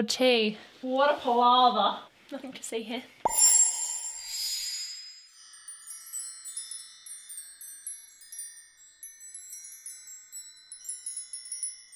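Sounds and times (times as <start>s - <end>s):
tinkling chimes: 3.3s - 11.9s.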